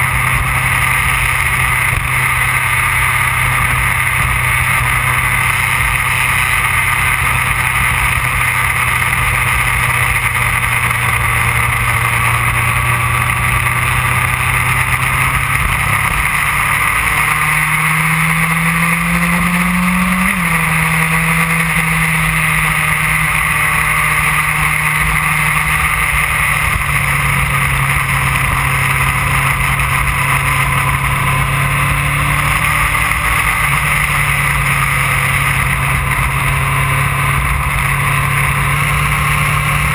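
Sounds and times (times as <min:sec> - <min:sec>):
motorcycle engine running: 0:00.0 - 0:39.9
wind and road noise: 0:00.0 - 0:39.9.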